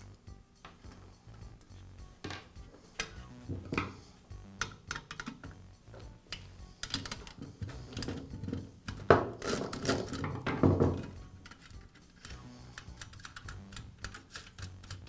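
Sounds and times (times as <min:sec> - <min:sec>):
screwdriver clicking on metal: 0:06.3 - 0:08.2, 0:11.3 - 0:15.0.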